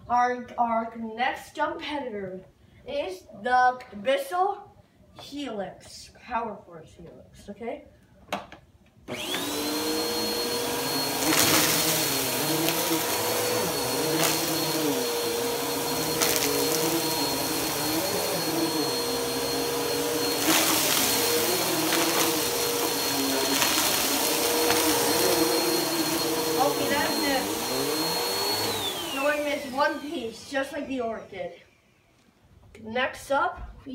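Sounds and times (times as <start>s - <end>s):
vacuum cleaner motor whine: 9.1s - 32.2s
vacuum cleaner rattles: 10.6s - 30.0s.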